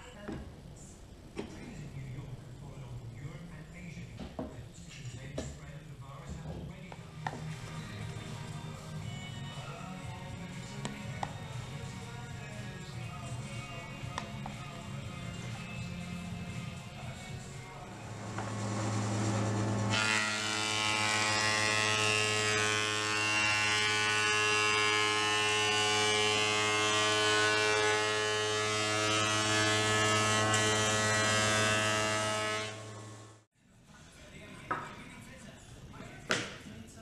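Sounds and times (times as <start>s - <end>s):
thickness planer cutting wood: 18.3s - 33.2s.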